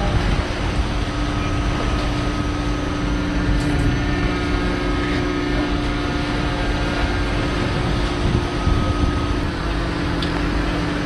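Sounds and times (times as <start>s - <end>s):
boat engine droning: 0.0s - 11.0s
water rushing: 0.0s - 11.0s
wind rushing: 6.1s - 10.0s.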